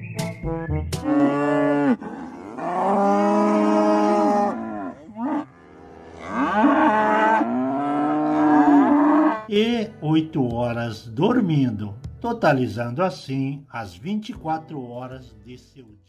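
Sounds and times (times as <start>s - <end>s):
young cattle mooing: 1.0s - 9.5s.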